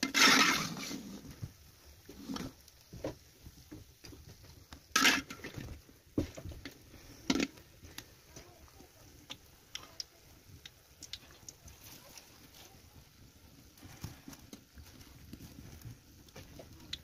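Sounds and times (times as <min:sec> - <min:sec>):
metal skimmer scraping a wok: 0:00.0 - 0:01.4, 0:02.0 - 0:02.7, 0:04.9 - 0:05.6
oil sizzling: 0:00.0 - 0:17.0.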